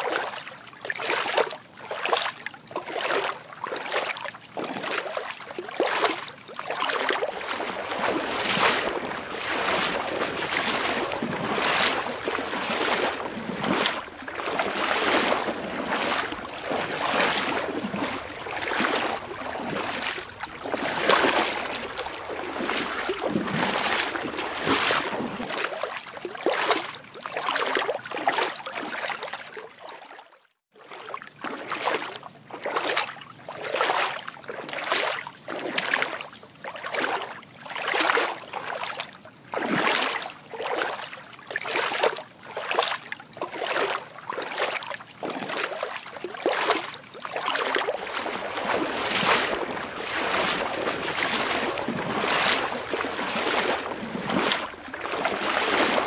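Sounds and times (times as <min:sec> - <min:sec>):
water sloshing in surges: 0:00.0 - 0:56.0.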